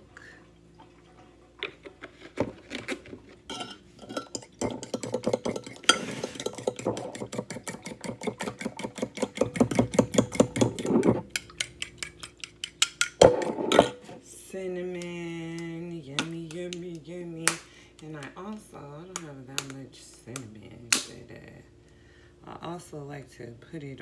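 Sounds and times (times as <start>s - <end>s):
whisking in a bowl: 4.2s - 13.2s.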